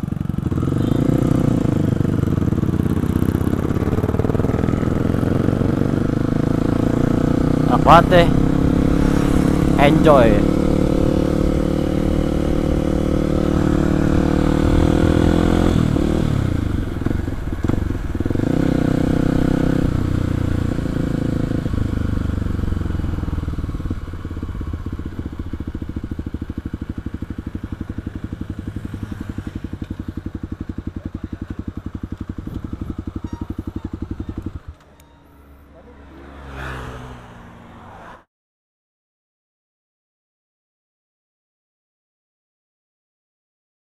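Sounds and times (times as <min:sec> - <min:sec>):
motorcycle engine idling: 0:00.0 - 0:36.6.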